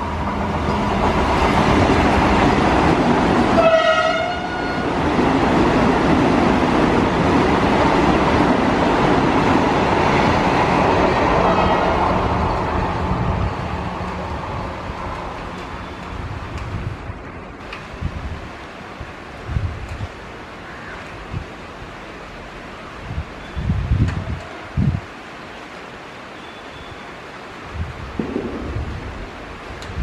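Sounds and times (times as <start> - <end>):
train passing rush: 0.0 - 26.4, 27.0 - 30.0
train horn blast: 3.6 - 4.9.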